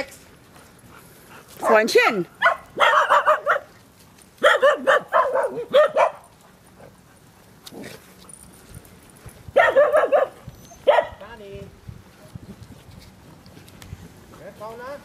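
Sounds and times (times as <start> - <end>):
dog barking: 1.6 - 3.7, 4.4 - 6.3, 9.6 - 11.2.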